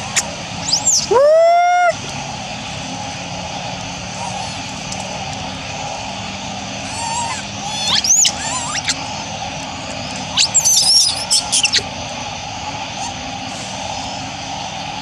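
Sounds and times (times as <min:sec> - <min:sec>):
young monkeys squealing: 0:00.0 - 0:02.0, 0:04.1 - 0:04.8, 0:06.8 - 0:09.2, 0:10.2 - 0:11.9, 0:12.9 - 0:13.2.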